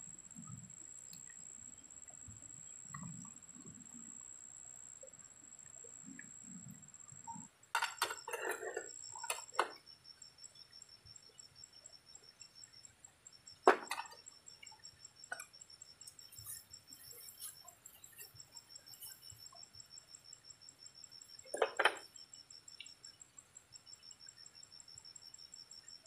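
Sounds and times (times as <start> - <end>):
handling clicks and rustles: 7.8 - 9.8.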